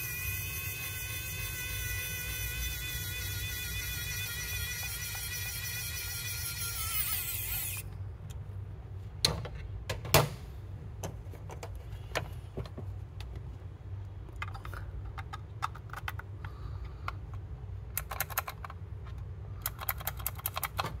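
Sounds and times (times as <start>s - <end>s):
electric screwdriver whine: 0.0s - 7.8s
plastic parts clicking and knocking: 14.3s - 21.0s.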